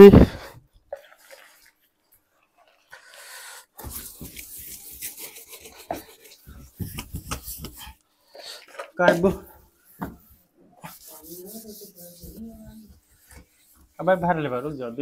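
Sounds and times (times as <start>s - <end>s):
water sloshing and splashing: 0.9s - 3.0s.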